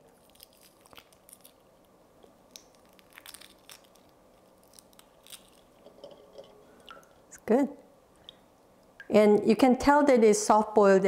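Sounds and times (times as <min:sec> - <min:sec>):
egg shell crackling: 0:00.1 - 0:07.2.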